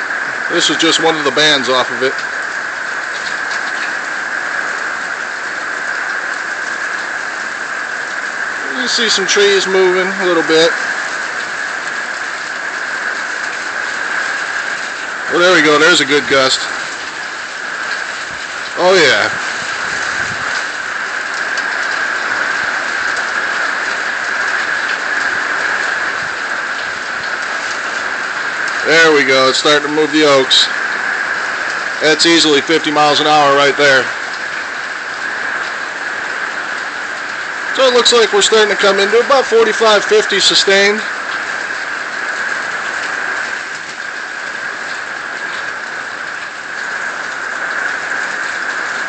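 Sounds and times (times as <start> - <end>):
gusty wind: 0.0 - 29.4
heavy rain hissing: 0.0 - 49.0.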